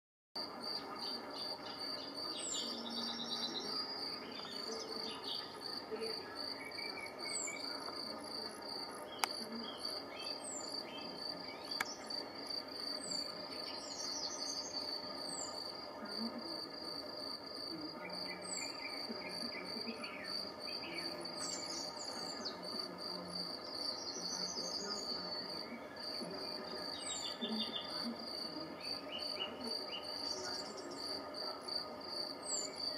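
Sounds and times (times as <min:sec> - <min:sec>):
insects trilling: 0:00.4 - 0:32.9
songbirds calling: 0:00.4 - 0:32.9.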